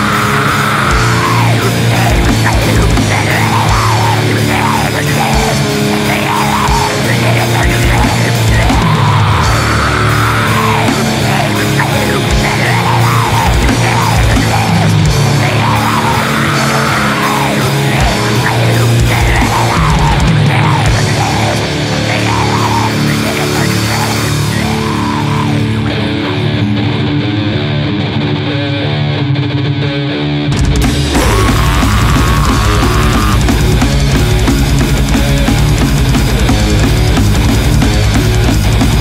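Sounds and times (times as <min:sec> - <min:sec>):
pounding drums: 0:00.0 - 0:25.6, 0:30.6 - 0:39.0
bass guitar: 0:00.0 - 0:39.0
distorted electric guitars: 0:00.0 - 0:39.0.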